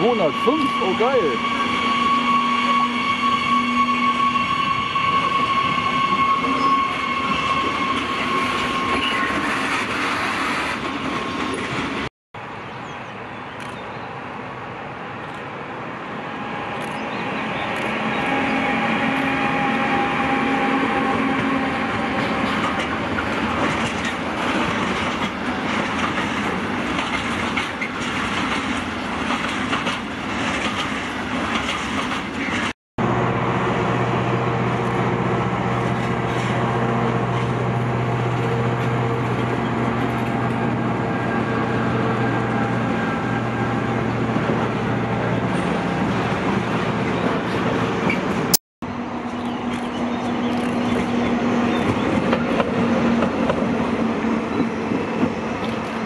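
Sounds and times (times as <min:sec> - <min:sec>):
diesel locomotive engine drone: 0:00.0 - 0:56.0
electric locomotive hum: 0:00.0 - 0:56.0
train wheels clattering over rail joints: 0:22.1 - 0:32.7.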